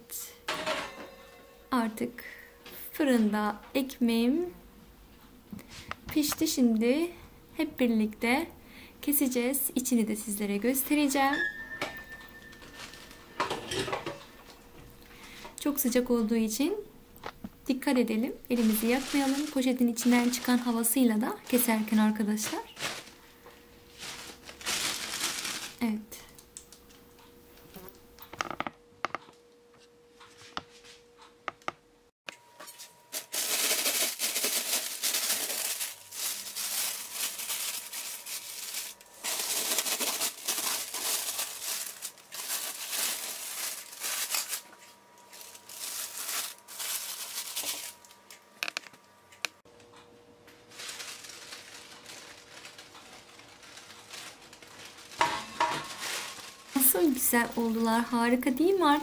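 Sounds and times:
plastic bag crinkling: 12.4 - 13.3, 18.1 - 26.4, 32.6 - 48.8, 50.6 - 59.0.

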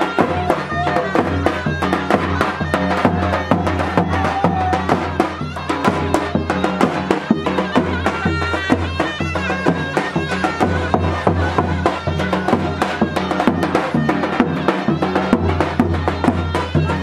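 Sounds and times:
reedy wind instrument melody: 0.0 - 17.0
steady drum beat: 0.0 - 17.0.

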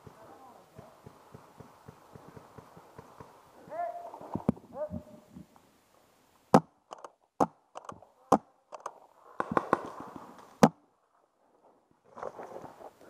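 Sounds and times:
rustle: 8.9 - 13.0.

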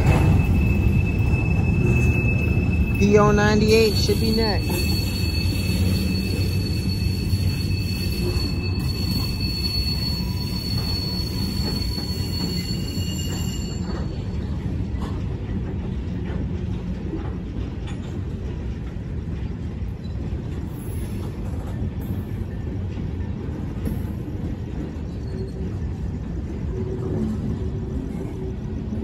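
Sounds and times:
high wheel squeal: 0.0 - 14.2
train wheels rumbling on rail: 0.0 - 29.0.

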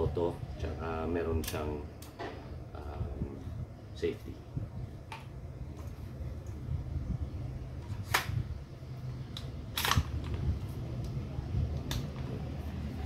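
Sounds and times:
rifle handling clicks: 1.4 - 2.2, 9.3 - 10.4, 11.0 - 12.3.

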